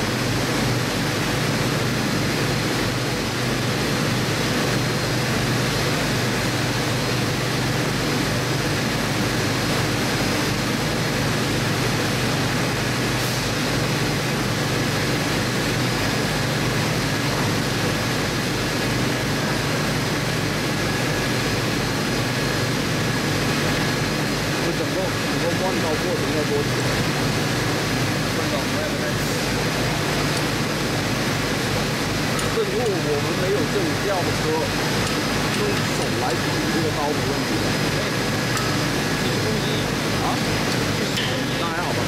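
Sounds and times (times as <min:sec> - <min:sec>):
machinery low hum: 0:00.0 - 0:42.0
machinery hiss: 0:13.1 - 0:13.7.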